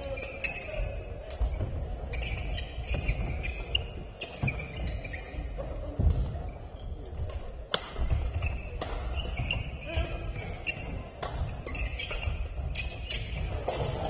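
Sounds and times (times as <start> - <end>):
shoes squeaking: 0.0 - 14.0
rackets hitting shuttlecock: 7.2 - 9.7, 10.4 - 14.0.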